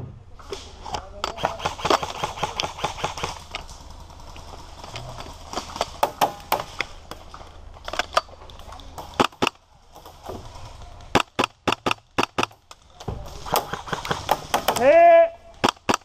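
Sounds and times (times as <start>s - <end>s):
airsoft guns firing: 1.2s - 4.8s, 5.6s - 6.9s, 11.1s - 12.6s, 13.2s - 16.0s.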